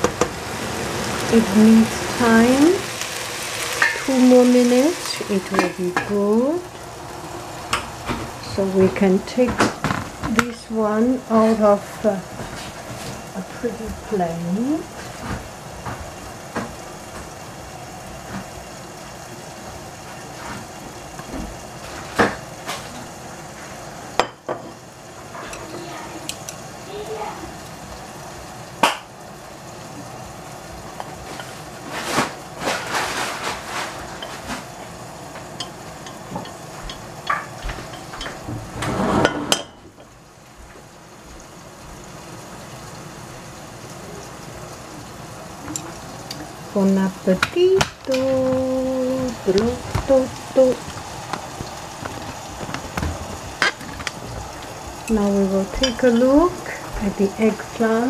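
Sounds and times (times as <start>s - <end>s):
steady hiss: 0.0s - 58.0s.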